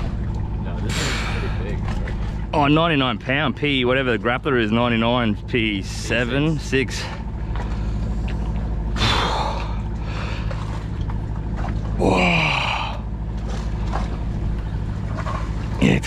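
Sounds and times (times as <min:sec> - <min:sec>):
machinery drone: 0:00.0 - 0:16.0.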